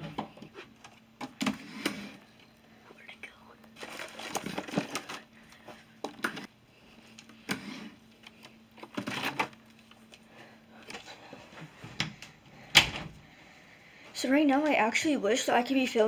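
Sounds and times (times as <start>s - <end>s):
faint low hum: 0.0s - 16.0s
objects rattling and scraping: 3.8s - 6.5s, 7.1s - 10.2s.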